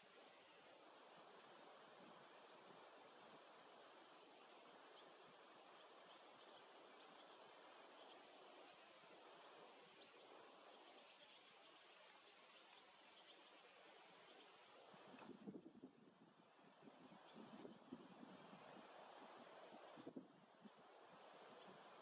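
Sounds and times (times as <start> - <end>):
steady outdoor hiss: 0.0 - 22.0
swallows chirping: 4.2 - 14.7.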